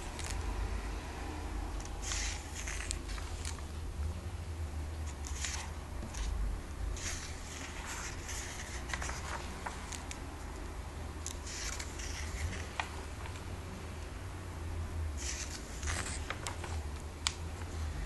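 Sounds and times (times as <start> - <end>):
steady low hum: 0.0 - 18.0
paper pages rustling: 1.8 - 3.7, 5.1 - 6.4, 7.0 - 10.2, 11.3 - 13.5, 15.2 - 17.7.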